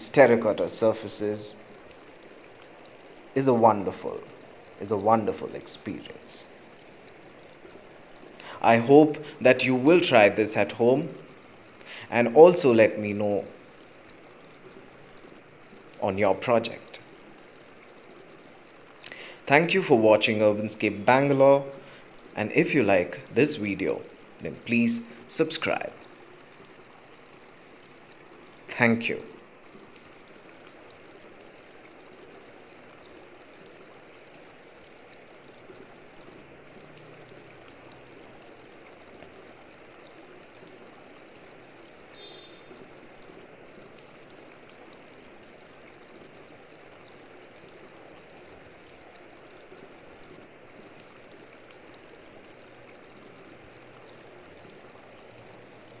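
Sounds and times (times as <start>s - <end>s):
fountain water trickling: 0.0s - 56.0s.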